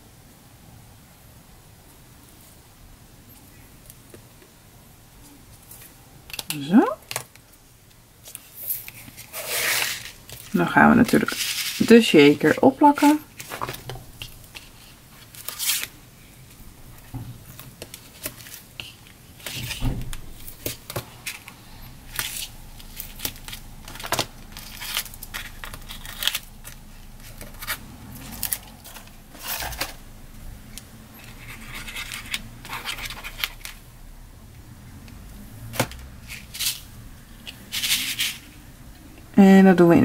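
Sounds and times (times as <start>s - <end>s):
card and tape rustling: 8.2s - 33.8s, 35.7s - 38.5s
tape tearing: 8.3s - 16.0s, 22.1s - 30.0s, 31.2s - 33.8s.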